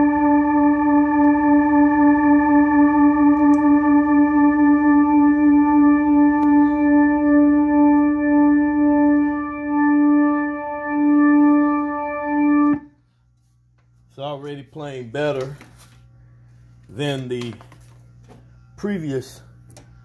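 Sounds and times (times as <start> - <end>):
organ note through rotating speaker: 0.0 - 13.0.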